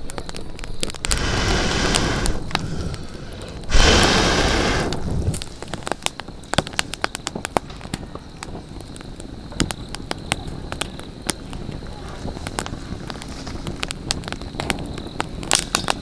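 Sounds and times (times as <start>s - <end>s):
campfire crackling and popping: 0.0s - 16.0s
loud rushing noise: 3.7s - 5.1s.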